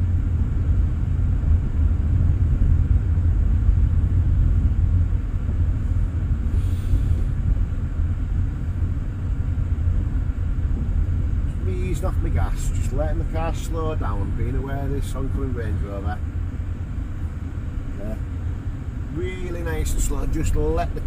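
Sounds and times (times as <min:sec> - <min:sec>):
car engine and tyres rumbling: 0:00.0 - 0:21.0
faint hiss: 0:05.7 - 0:07.4.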